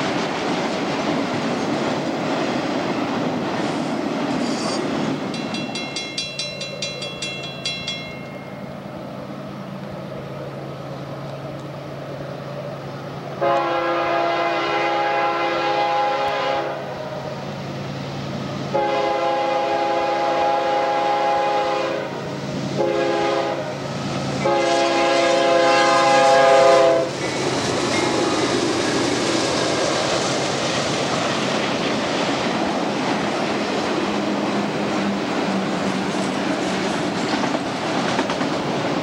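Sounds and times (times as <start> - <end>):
wheels clicking over rail joints: 0.0 - 10.0, 27.1 - 39.0
train rushing past: 0.0 - 39.0
locomotive air horn blasts: 13.4 - 17.0, 18.7 - 23.8, 24.4 - 27.2.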